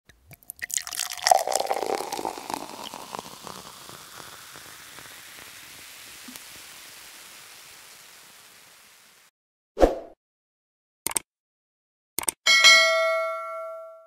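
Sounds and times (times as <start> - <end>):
crackling and spattering: 0.8 - 9.3
steady hiss: 1.5 - 9.3.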